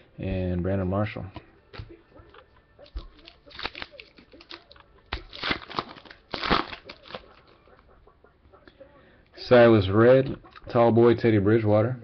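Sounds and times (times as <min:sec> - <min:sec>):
foil wrapper tearing and crinkling: 0:02.9 - 0:07.6.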